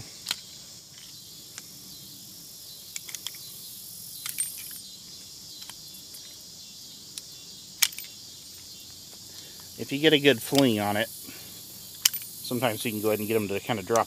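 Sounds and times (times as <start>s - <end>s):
insects chirring: 0.0s - 14.0s
revolver metallic clicks: 10.4s - 10.8s.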